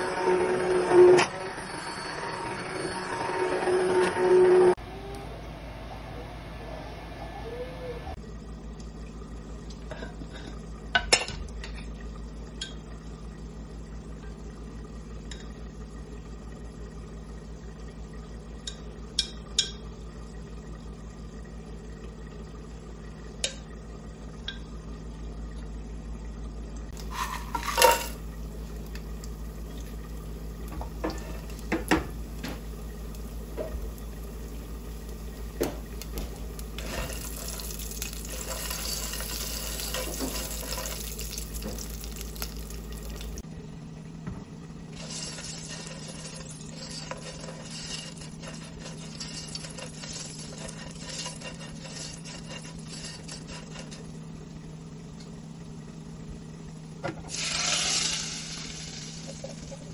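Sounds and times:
steady low hum: 0.0 - 59.9
pots and utensils clinking: 27.0 - 29.0, 30.6 - 43.4.

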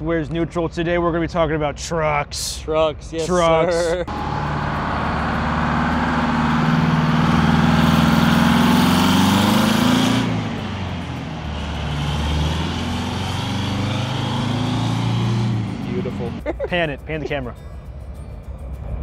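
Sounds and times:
diesel truck pulling away: 4.1 - 19.0.

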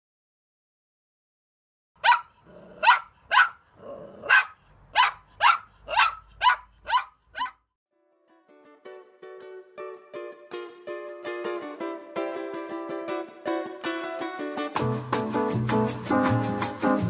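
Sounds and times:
dog barking: 2.0 - 7.6.

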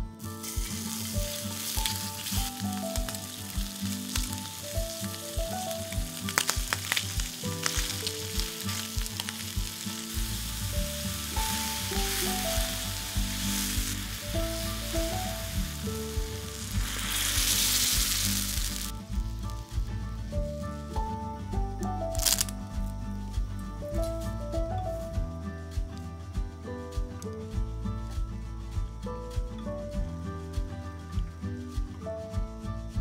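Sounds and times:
background music with steady beat: 0.0 - 33.0
food sizzling in a frying pan: 0.2 - 19.8, 22.2 - 22.5
water hissing in hot pan: 0.2 - 19.9, 22.2 - 22.5.

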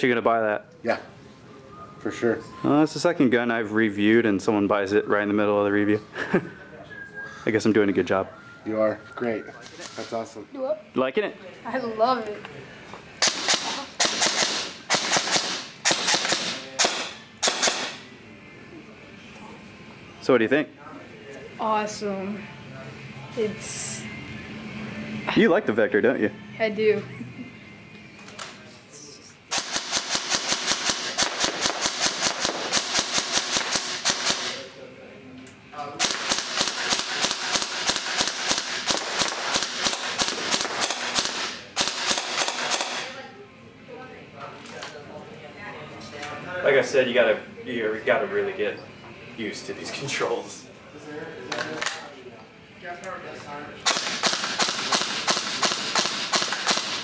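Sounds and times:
airsoft gun full-auto bursts: 13.2 - 17.9, 29.5 - 34.5, 36.0 - 43.1, 53.8 - 57.0.

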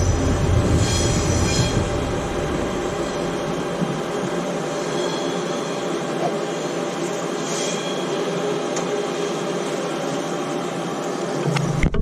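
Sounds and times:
faint high steady tones: 0.0 - 11.9
train whirring hum: 0.0 - 12.0.

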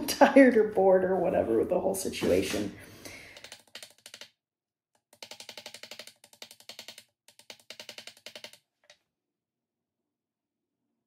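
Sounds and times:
rapid light taps: 3.3 - 4.3, 5.0 - 9.0.

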